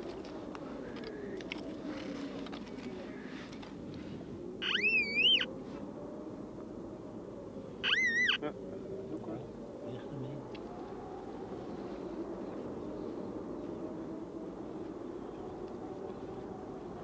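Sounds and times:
metal detector warbling beeps: 4.6 - 5.5, 7.8 - 8.4.

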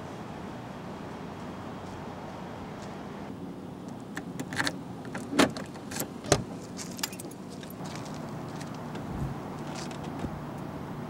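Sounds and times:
car door latch clacking: 4.3 - 7.3
keys jangling at a lock: 6.9 - 7.9.

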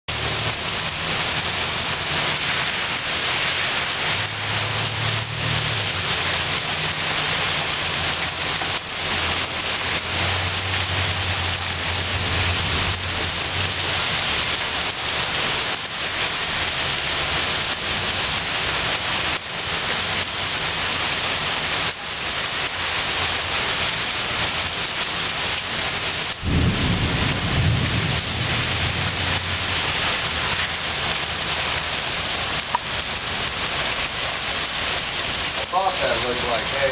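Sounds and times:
heavy rain pouring: 0.1 - 36.9
thunder rumbling: 26.3 - 30.6.

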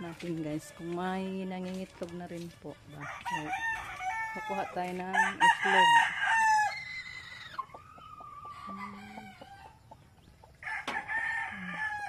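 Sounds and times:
roosters crowing: 2.9 - 12.0
chicken clucks: 6.8 - 12.0.

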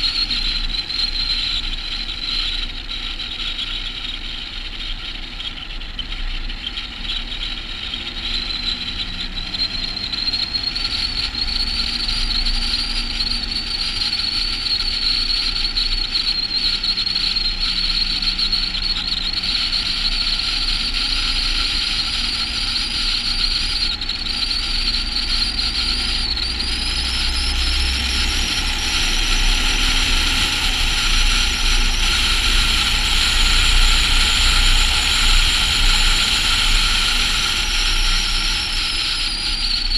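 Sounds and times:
truck diesel engine drone: 5.7 - 39.9
high whine: 8.1 - 39.9
road and wind rush: 18.5 - 39.9.

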